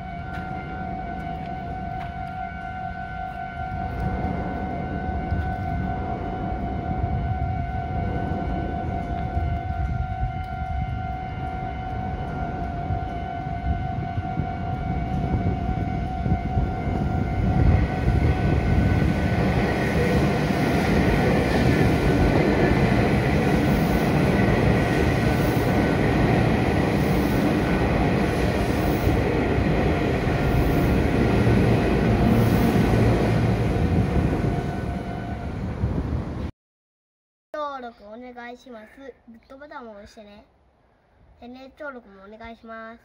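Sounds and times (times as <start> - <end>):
level crossing warning bell: 0.0 - 32.3
train wheels rumbling on rails: 0.1 - 36.5.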